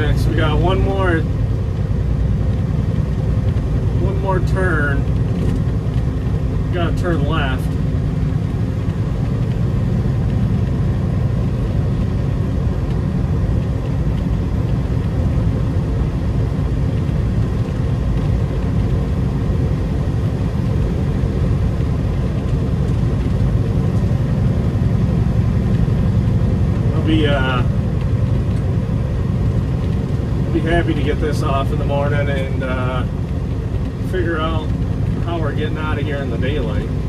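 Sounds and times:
diesel truck engine rumble: 0:00.0 - 0:37.0
road noise: 0:00.0 - 0:37.0.

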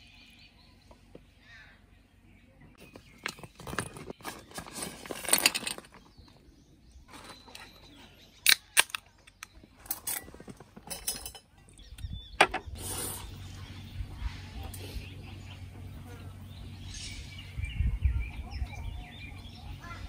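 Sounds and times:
ice and cans clinking: 0:02.8 - 0:06.3.

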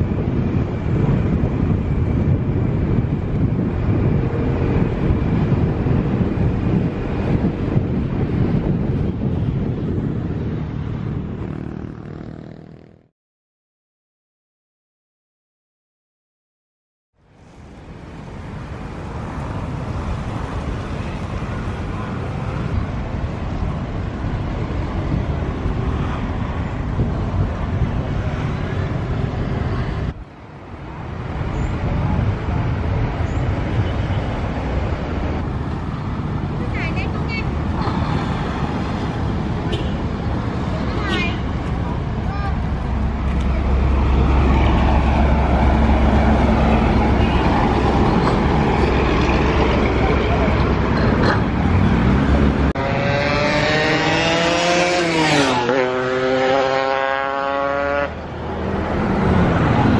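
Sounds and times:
bus engine rumbling: 0:00.0 - 0:13.1, 0:17.2 - 0:54.9, 0:56.6 - 0:59.9
street traffic noise: 0:00.0 - 0:13.1, 0:17.2 - 0:59.9
low outdoor rumble: 0:38.8 - 0:52.8.

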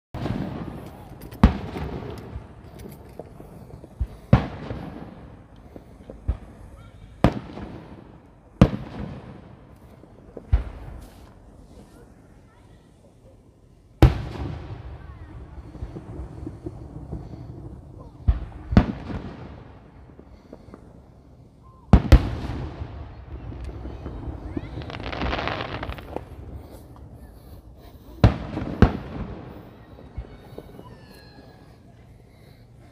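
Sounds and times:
firework crackling: 0:00.2 - 0:13.1, 0:13.9 - 0:32.9
fireworks shells bursting: 0:23.6 - 0:31.7
firework shell bursts: 0:24.7 - 0:27.5.

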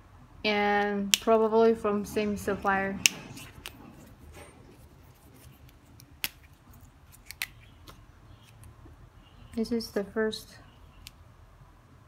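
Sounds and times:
pen caps clicking: 0:05.6 - 0:07.6.

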